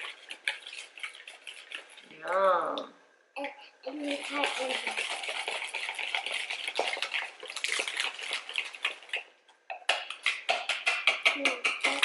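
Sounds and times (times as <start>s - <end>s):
whisk scraping a plastic bowl: 0.0s - 2.3s, 4.1s - 9.2s.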